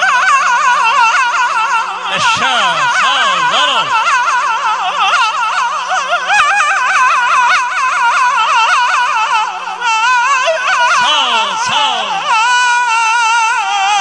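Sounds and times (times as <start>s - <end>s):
melody with fast wide vibrato: 2.1s - 4.8s, 10.5s - 13.0s.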